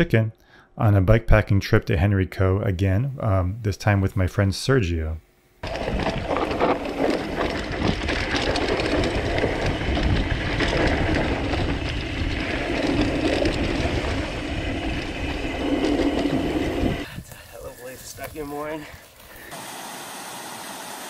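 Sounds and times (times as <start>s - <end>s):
wind on microphone: 5.6s - 19.1s
bike and bags rattling: 5.6s - 19.5s.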